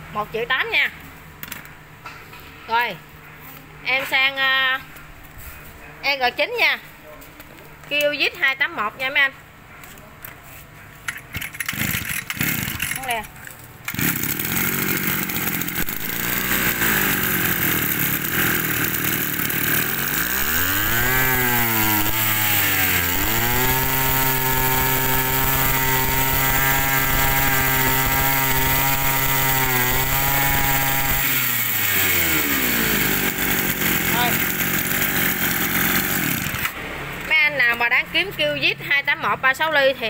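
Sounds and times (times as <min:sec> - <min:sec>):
brush cutter engine revving: 0:11.4 - 0:36.9.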